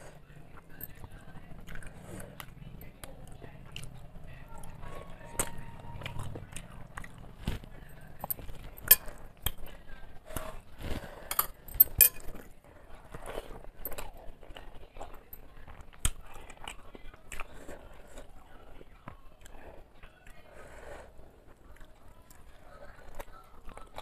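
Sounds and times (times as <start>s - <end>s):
wet chewing and lip-smacking: 0.4s - 11.0s, 13.1s - 20.4s, 21.5s - 24.0s
clinks against a steel plate: 11.3s - 12.3s.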